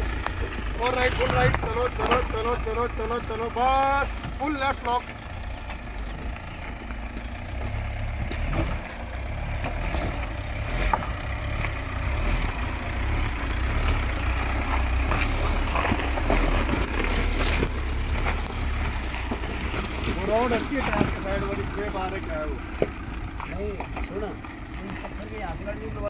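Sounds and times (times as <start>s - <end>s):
stones knocking under tyres: 0.0s - 2.6s, 3.6s - 26.0s
off-road vehicle engine at low revs: 0.0s - 26.0s.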